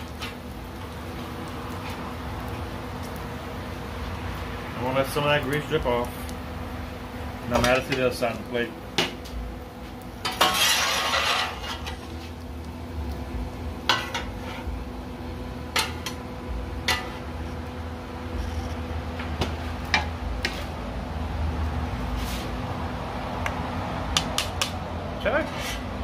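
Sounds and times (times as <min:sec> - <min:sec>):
metal spatulas scraping griddle: 0:10.2 - 0:12.4, 0:13.9 - 0:14.8, 0:16.8 - 0:17.4, 0:18.3 - 0:18.8, 0:19.9 - 0:20.8, 0:22.1 - 0:22.6, 0:25.2 - 0:26.0.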